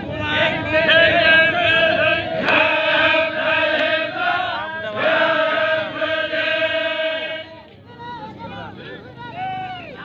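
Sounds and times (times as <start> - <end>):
men chanting long held notes: 0.0 - 7.6.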